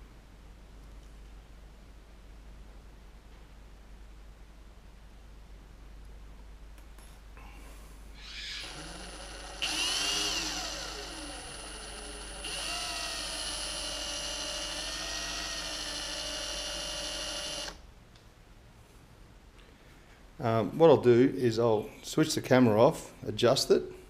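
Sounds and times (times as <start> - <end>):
electric drill motor whine: 8.2 - 17.8.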